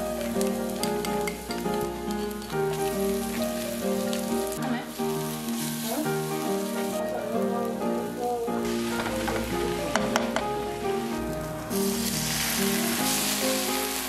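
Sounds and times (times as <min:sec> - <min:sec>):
background music: 0:00.0 - 0:14.0
garlic sizzling in oil: 0:00.0 - 0:14.0.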